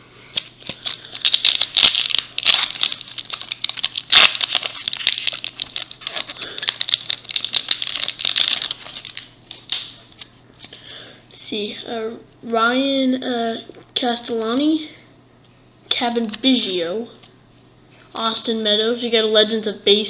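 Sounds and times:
foil wrapper crinkling and tearing: 0.3 - 10.3.

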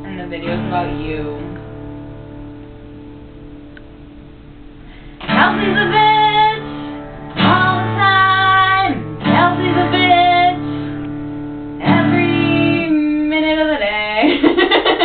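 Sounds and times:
acoustic guitar strums: 0.4 - 12.8
woman singing long notes: 5.2 - 6.7, 7.4 - 10.6, 11.8 - 14.2.

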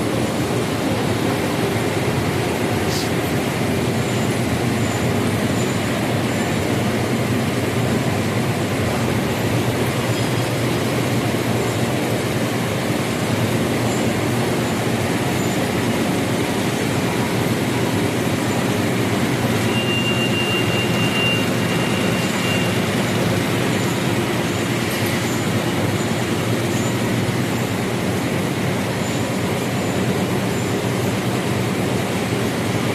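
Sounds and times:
printing press running: 0.0 - 32.9
faint high whistle: 19.7 - 22.8.

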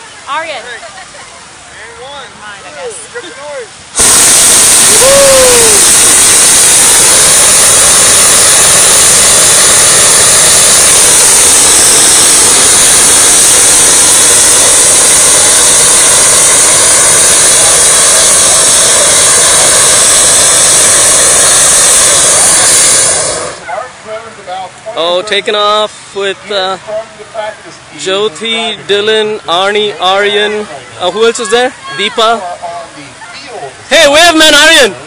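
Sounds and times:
propane burner blast: 3.9 - 24.0.

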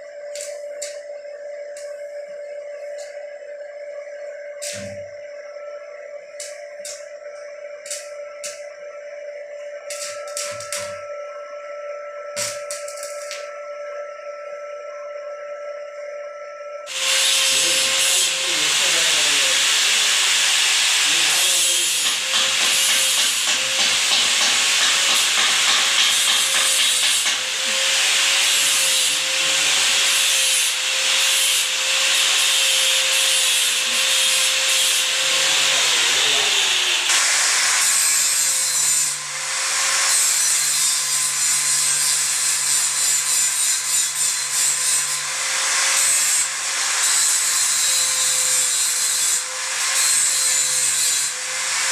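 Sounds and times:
power tool grinding metal: 16.9 - 51.9.

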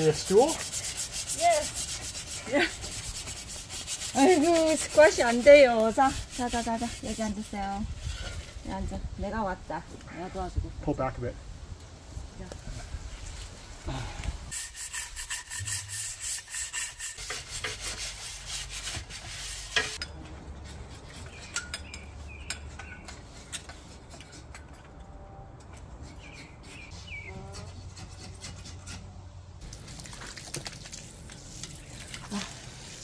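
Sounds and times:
brush scrubbing grill grate: 0.0 - 8.6, 14.5 - 20.1, 26.1 - 29.0, 31.0 - 33.0.

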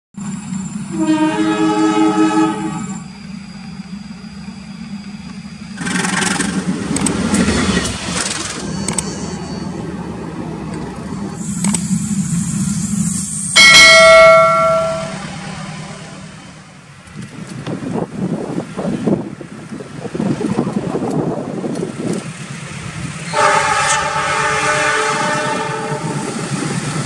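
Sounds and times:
engine hum: 0.2 - 27.0
train roaring past: 0.2 - 27.0
train horn blast: 0.9 - 3.0, 23.3 - 26.3.

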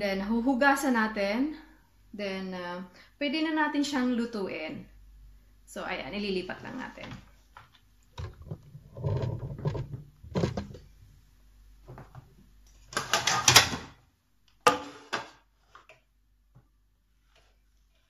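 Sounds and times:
scrapes rustles and knocks on tabletop: 8.2 - 10.9.

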